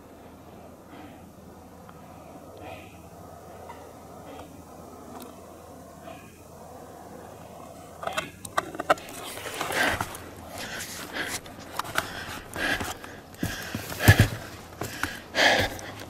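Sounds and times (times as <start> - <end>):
footsteps crunching on forest floor: 9.5 - 16.0.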